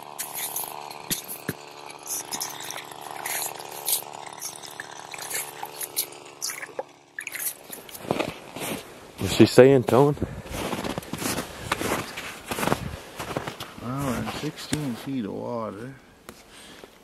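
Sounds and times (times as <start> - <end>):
ice scoop scraping and splashing: 0.0 - 8.9
ice auger motor running: 0.0 - 15.0.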